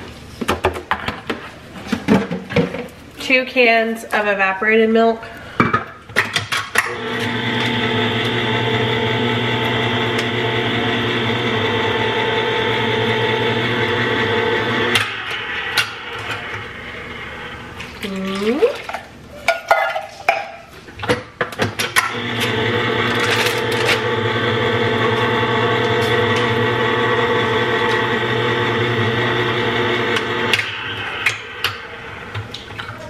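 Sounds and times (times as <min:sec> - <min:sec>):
electric can opener running: 0:06.8 - 0:18.0, 0:22.0 - 0:32.6
short rising whine: 0:12.5 - 0:18.0, 0:25.5 - 0:32.6.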